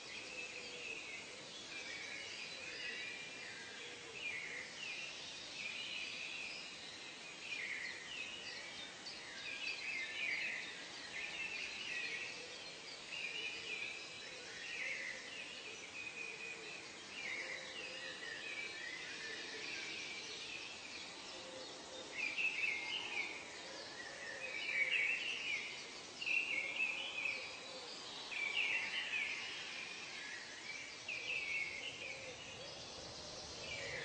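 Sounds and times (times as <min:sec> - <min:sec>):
steady background hiss: 0:00.0 - 0:34.0.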